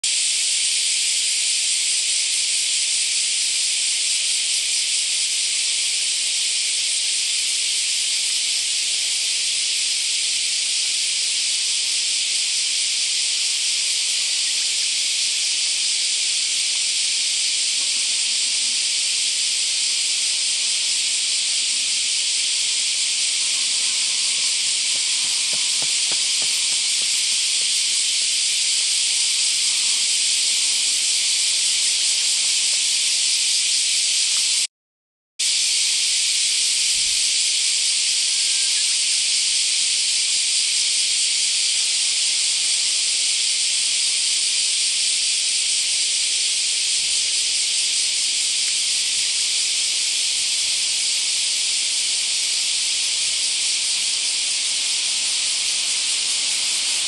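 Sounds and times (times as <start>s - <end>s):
high-pitched hiss: 0.0s - 34.7s, 35.4s - 57.0s.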